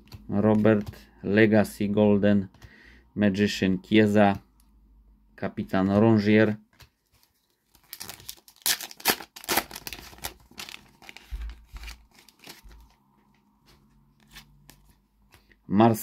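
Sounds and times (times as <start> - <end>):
cards being handled: 0.0 - 1.1, 6.7 - 15.6
wrapper crackling and crinkling: 7.2 - 13.0.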